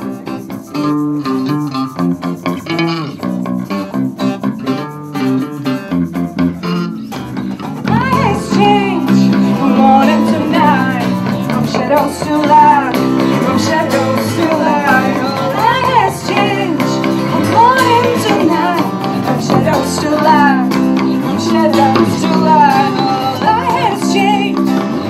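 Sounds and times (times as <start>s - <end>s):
electric guitar: 0.0s - 25.0s
strummed acoustic guitar: 0.0s - 25.0s
women singing: 7.8s - 24.7s.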